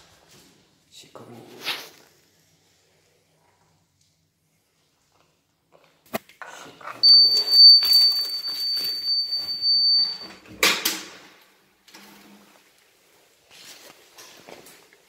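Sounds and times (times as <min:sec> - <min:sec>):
shuffling on tile floor: 0:00.0 - 0:03.7, 0:07.0 - 0:10.4, 0:12.2 - 0:15.0
door lock high beep: 0:07.0 - 0:10.4.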